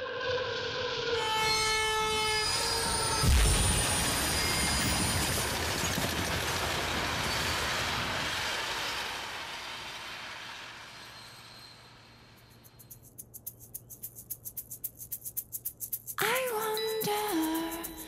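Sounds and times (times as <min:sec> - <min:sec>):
train wheels rumbling on rails: 0:02.5 - 0:13.1.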